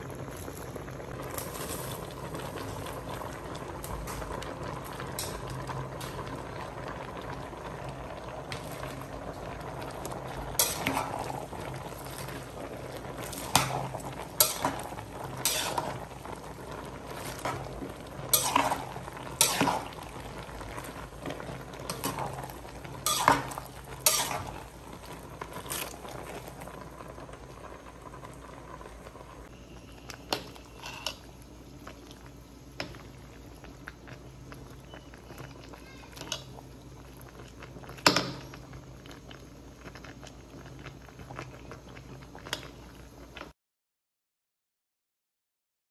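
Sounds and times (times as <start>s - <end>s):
soup simmering: 0.0s - 43.6s
utensils scraping a metal pot: 10.6s - 11.3s, 13.3s - 16.1s, 17.1s - 20.0s, 23.0s - 24.6s, 30.6s - 31.2s.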